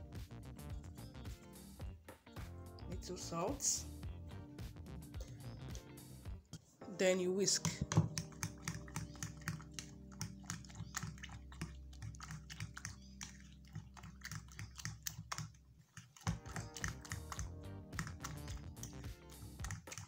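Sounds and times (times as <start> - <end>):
background music: 0.0 - 15.4, 16.2 - 20.0
fork whisking eggs in a bowl: 7.5 - 20.0.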